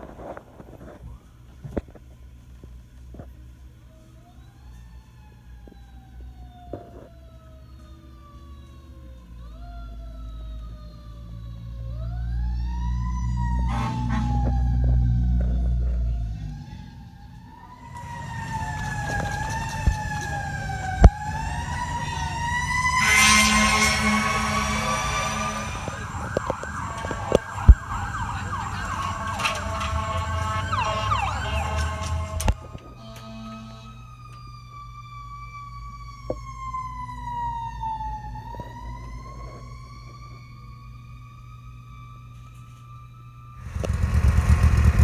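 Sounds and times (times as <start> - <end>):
fire engine siren wailing: 3.8 - 45.0
fire engine air horn blast: 13.5 - 14.8, 21.4 - 34.2.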